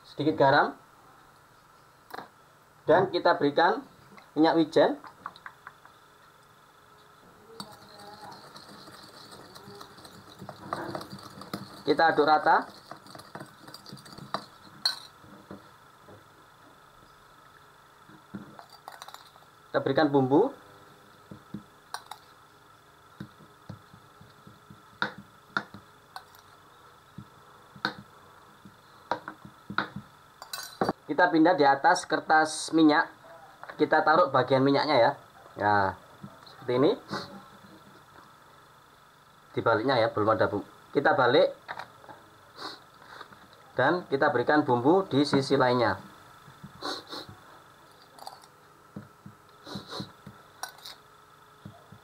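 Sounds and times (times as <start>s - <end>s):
spoon scraping ceramic bowl: 7.6s - 15.1s.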